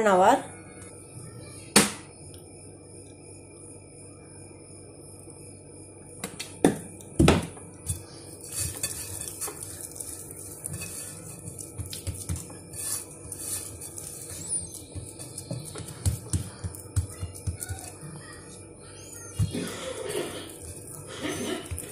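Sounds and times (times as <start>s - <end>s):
hand rubbing oil on dough: 7.9s - 18.0s, 20.4s - 21.9s.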